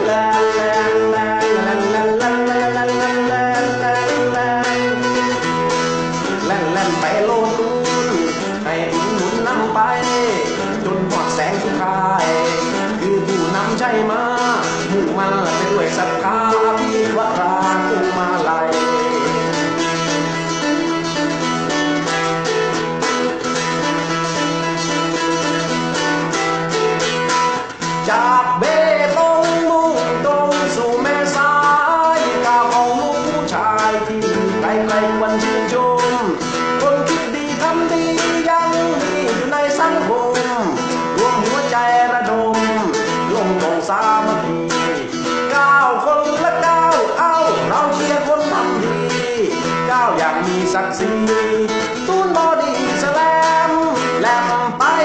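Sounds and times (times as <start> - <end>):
man singing: 0.0 - 55.0
strummed guitar: 0.0 - 55.0.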